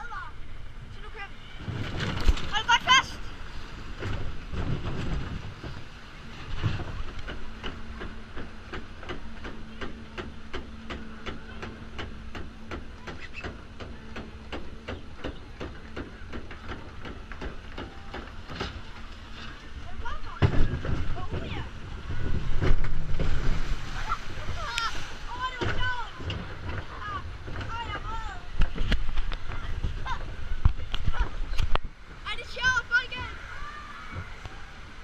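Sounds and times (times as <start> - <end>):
steady low hum: 0.0 - 35.0.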